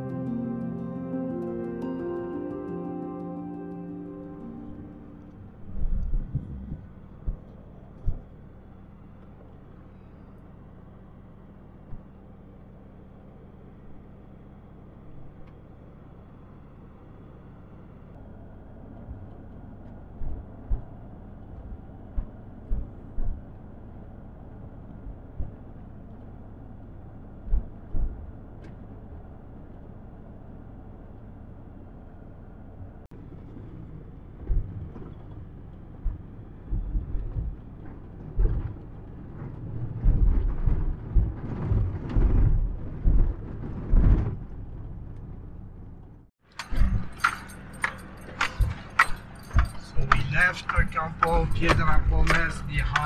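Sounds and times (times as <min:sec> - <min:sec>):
vehicle thumping over bumps: 0:20.0 - 0:24.0, 0:33.2 - 0:45.6, 0:46.6 - 0:53.0
tyres rumbling on gravel: 0:33.1 - 0:53.0.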